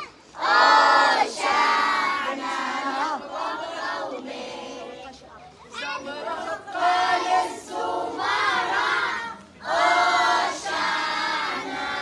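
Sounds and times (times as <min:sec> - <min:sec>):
children and women chanting: 0:00.0 - 0:12.0.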